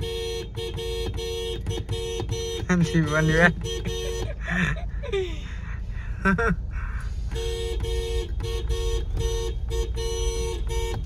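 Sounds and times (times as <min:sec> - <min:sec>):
engine and road rumble: 0:00.0 - 0:11.0
rapid two-tone beeping: 0:01.0 - 0:04.8.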